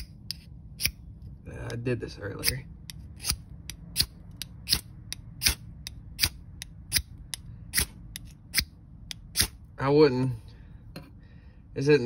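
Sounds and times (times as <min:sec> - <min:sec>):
knife scraping ferrocerium rod: 0:00.0 - 0:01.0, 0:02.4 - 0:09.6.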